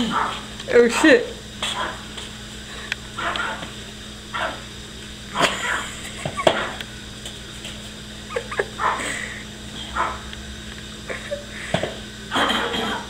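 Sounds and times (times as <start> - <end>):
small dog barking: 0.0 - 0.5, 3.2 - 3.7, 8.4 - 9.0, 9.9 - 10.3.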